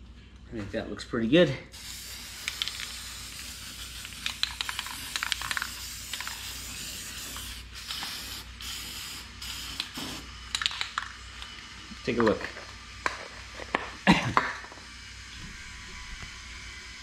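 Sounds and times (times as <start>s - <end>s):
spray paint can hissing: 1.7s - 15.3s.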